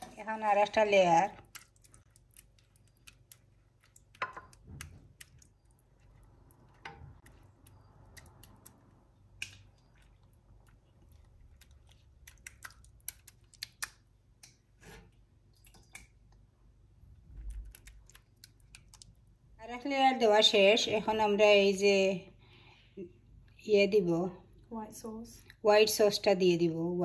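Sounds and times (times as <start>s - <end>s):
sauce squelching: 1.4s - 14.0s.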